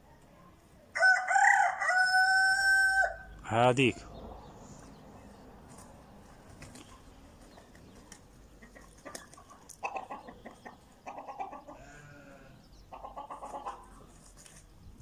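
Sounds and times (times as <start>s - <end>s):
chickens squawking: 6.6s - 14.4s.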